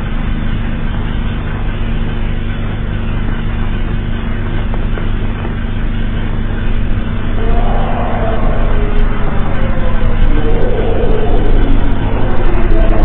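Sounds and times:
low droning rumble: 5.6 - 13.0.

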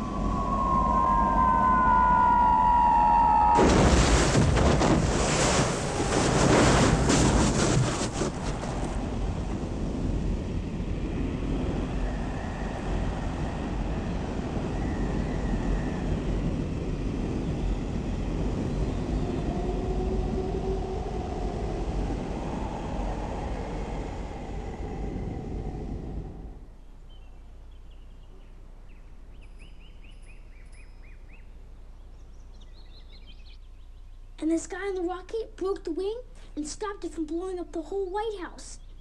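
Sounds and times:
blizzard wind rushing: 0.0 - 26.8
wind whistling: 0.0 - 27.0.

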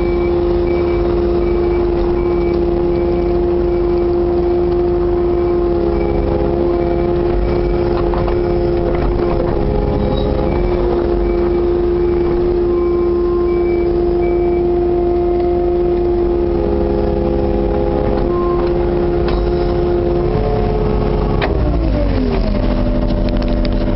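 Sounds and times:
excavator diesel engine running: 0.0 - 23.9
faint beeping: 9.8 - 14.9.

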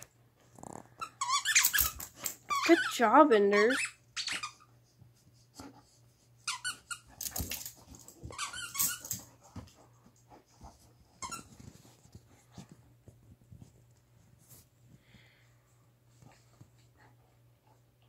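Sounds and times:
squeaky toy squeaking: 1.0 - 4.7, 6.4 - 7.1, 8.3 - 9.2.

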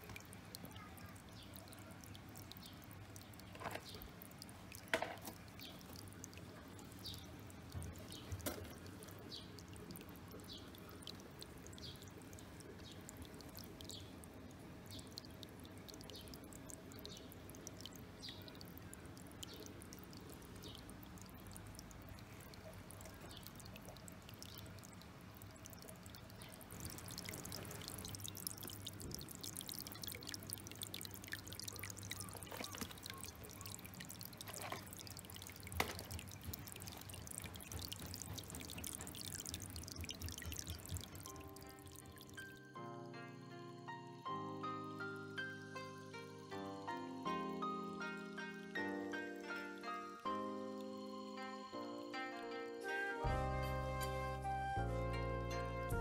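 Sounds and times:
water trickling over rocks: 0.0 - 42.8.

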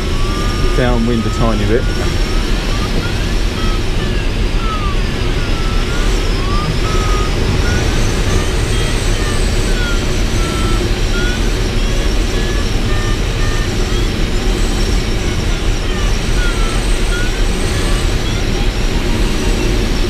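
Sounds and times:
variometer chirping tones: 0.0 - 20.0.

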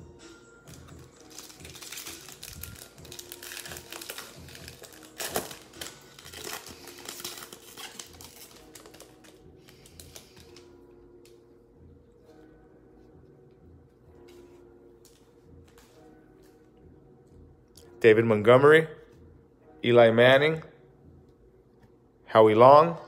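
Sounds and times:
loud foil crackle: 0.7 - 10.6
foil wrapper crinkling: 0.7 - 10.7.

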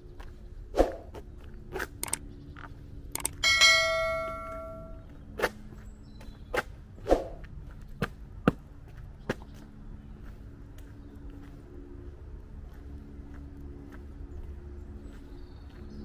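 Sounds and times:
metallic clang ringing: 3.3 - 5.0.

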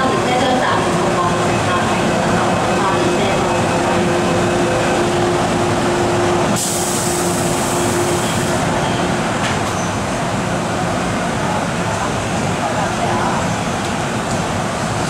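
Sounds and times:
electric train humming: 0.0 - 15.0
high hiss of air: 6.6 - 8.6.

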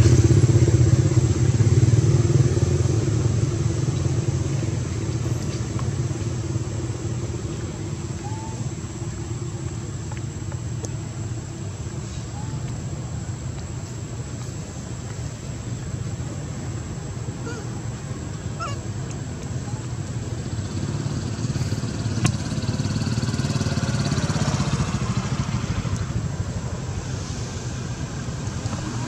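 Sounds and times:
low outdoor rumble: 0.0 - 29.0.

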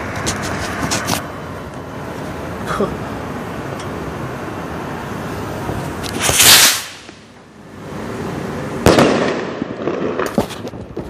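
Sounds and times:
firecracker hissing burst: 5.4 - 11.0
firecracker sharp bang: 6.1 - 7.3, 8.8 - 11.0.

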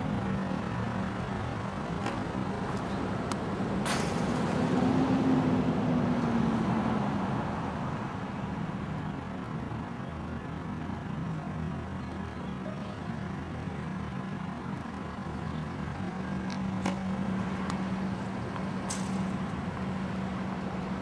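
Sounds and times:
vehicle passing: 0.0 - 8.3
road traffic noise: 0.0 - 21.0.

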